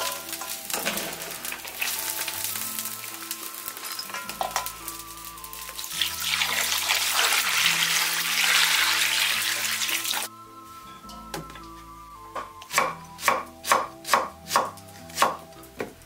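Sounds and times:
background music: 0.0 - 16.0.

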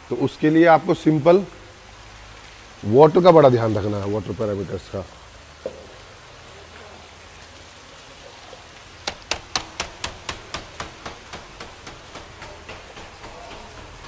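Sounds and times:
faint hiss of running water: 0.0 - 14.0
sharp knocks: 9.0 - 14.0.

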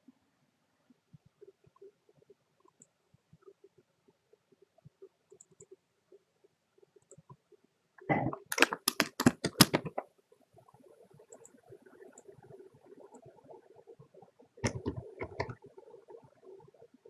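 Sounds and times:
keyboard typing: 8.3 - 10.0, 14.6 - 15.6.

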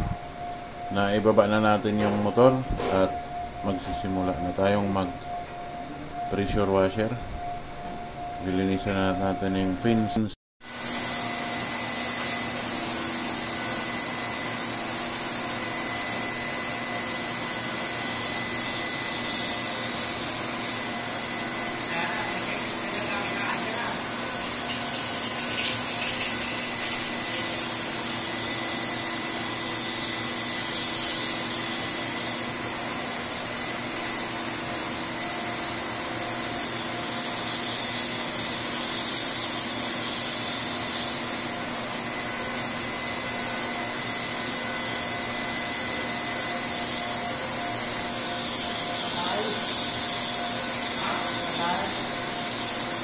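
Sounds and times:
machine hum: 0.0 - 53.0
pressure washer jet hissing: 10.7 - 53.0.

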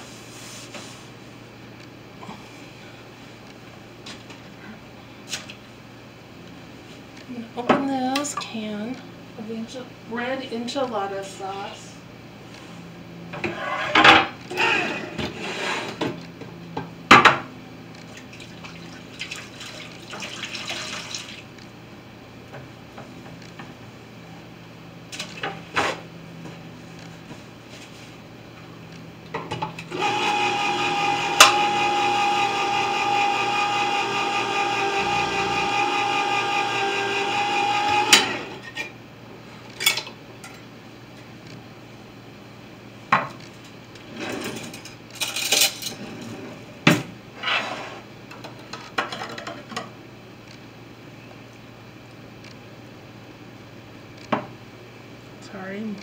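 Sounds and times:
electric can opener whining: 14.5 - 15.5, 29.8 - 38.7.

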